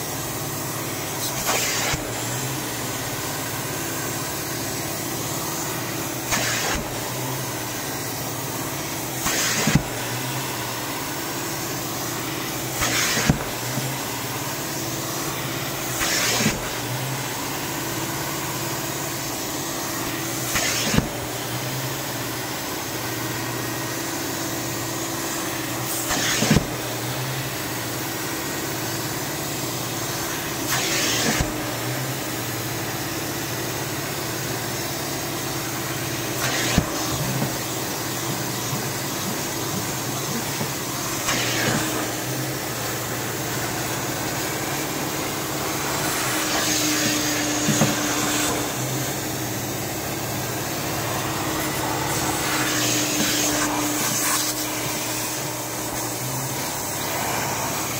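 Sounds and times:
vacuum motor running: 0.0 - 57.9
suction hissing rush: 1.2 - 8.4, 9.0 - 10.4, 11.6 - 16.9, 36.4 - 57.9.

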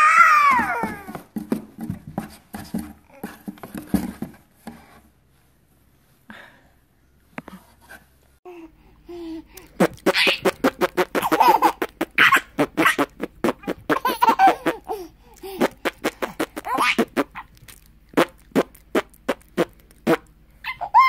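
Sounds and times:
baby laughing: 9.6 - 18.8, 20.6 - 21.0.

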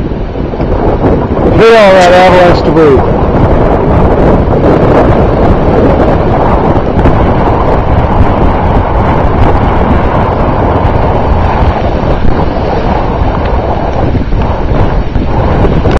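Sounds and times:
wind buffeting microphone: 0.0 - 15.9.

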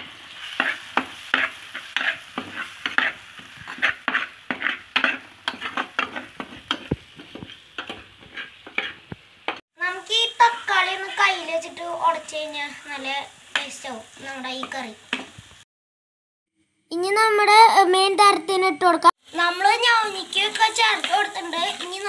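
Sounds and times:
food sizzling: 0.0 - 15.7, 17.0 - 22.0
metal spoon scraping pot: 0.6 - 6.9, 7.8 - 9.0.

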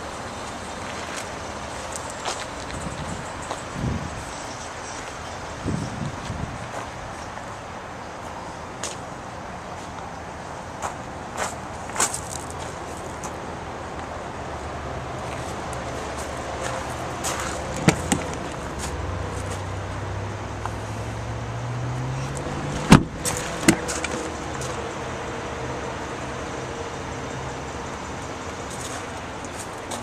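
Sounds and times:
steady vehicle hum: 0.0 - 30.0
car door slamming shut: 17.8 - 18.4, 22.8 - 23.9.

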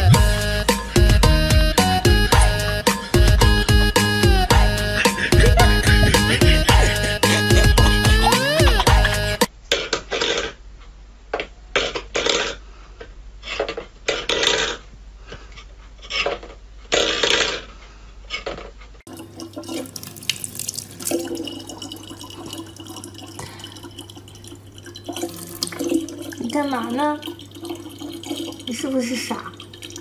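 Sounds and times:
tap water running into bottle: 19.1 - 30.0.

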